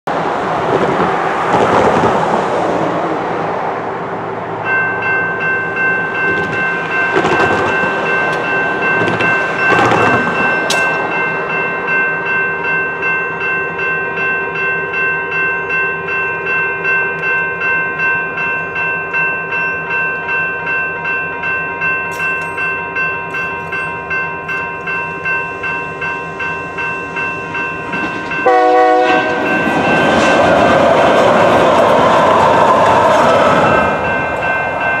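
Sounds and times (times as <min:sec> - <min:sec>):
road traffic passing: 0:00.1 - 0:12.7, 0:22.2 - 0:35.0
railroad crossing bells: 0:00.1 - 0:35.0
train horn: 0:28.4 - 0:29.6.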